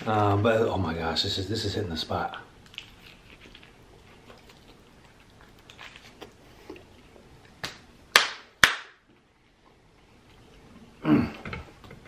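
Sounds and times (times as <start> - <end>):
faint chewing: 2.2 - 7.6
loud hand claps: 7.6 - 9.0.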